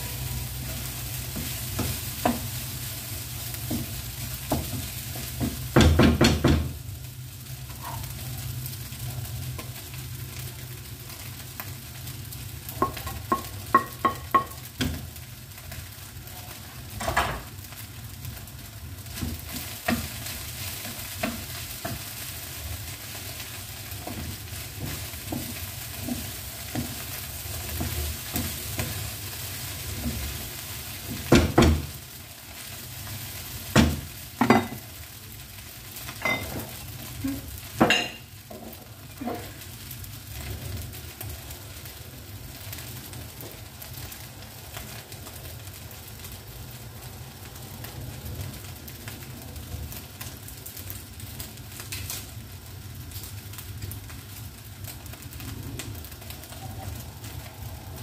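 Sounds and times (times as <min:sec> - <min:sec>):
egg sizzling in a wok: 0:00.0 - 0:58.0
spatula knocking against pan: 0:12.8 - 0:15.0.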